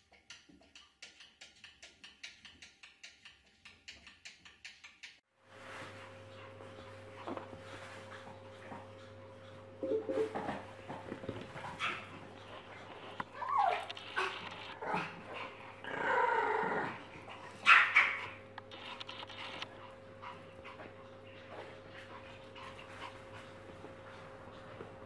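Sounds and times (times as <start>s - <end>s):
small dog whining and yipping: 13.4s - 14.0s.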